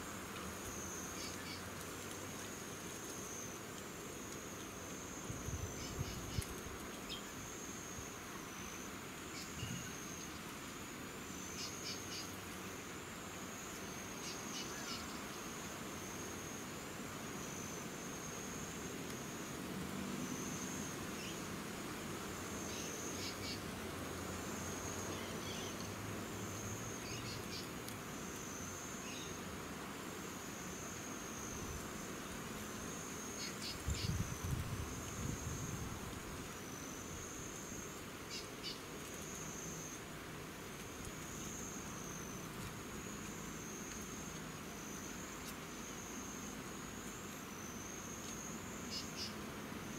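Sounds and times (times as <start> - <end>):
wind rumble on microphone: 5.3 - 6.8, 33.8 - 36.4
insect trilling: 47.7 - 49.4.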